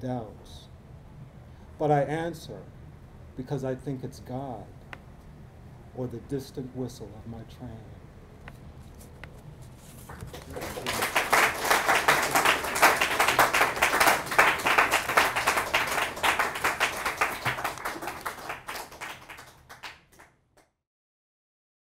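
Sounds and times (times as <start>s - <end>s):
audience clapping: 9.9s - 20.3s.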